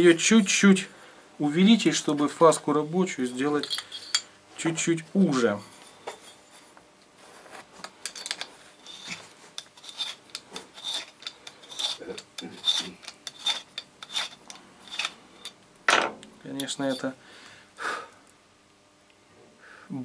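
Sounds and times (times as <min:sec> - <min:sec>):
valve seat cutter scraping metal: 0:08.8 - 0:15.5.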